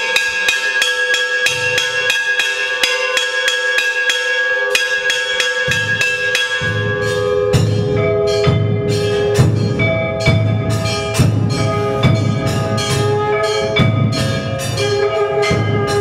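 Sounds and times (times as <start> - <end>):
bell of another pitch: 0.0 - 16.0
metal bells struck rapidly: 0.0 - 16.0
drum beating: 4.7 - 16.0.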